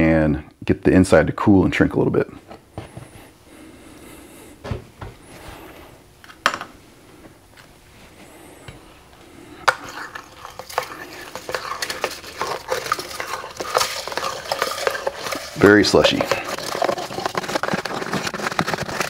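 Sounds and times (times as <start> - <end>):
spoon scraping icy slush: 9.7 - 19.0.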